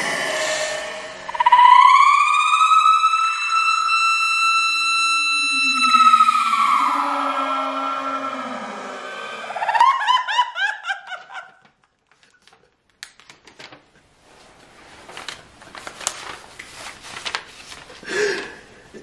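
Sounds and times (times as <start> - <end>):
person laughing: 8.6 - 11.7.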